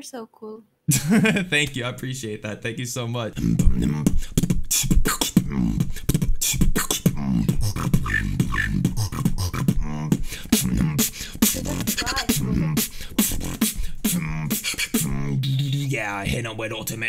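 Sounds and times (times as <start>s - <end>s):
man beatboxing: 3.3s - 17.0s.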